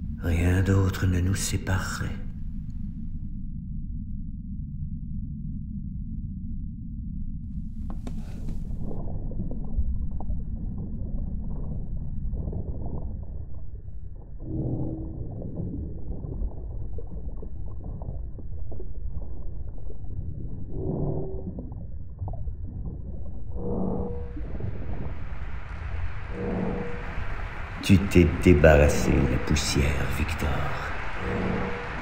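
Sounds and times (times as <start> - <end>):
low muffled rumbling drone: 0.0 - 32.0
low moaning tones: 20.4 - 32.0.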